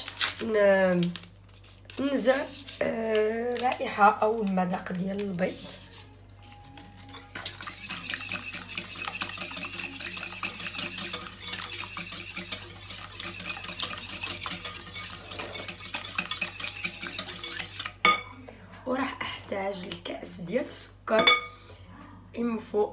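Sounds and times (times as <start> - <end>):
whisk clicking against bowl: 7.4 - 18.0.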